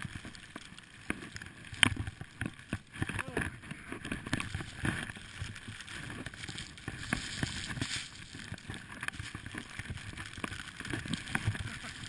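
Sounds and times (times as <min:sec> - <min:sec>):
skis rushing through powder snow: 0:00.0 - 0:12.0
small knocks and thumps: 0:00.0 - 0:12.0.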